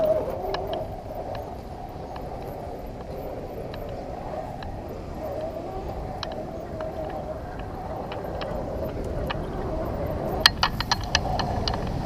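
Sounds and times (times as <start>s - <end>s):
clicks and knocks on stone: 10.4s - 12.0s.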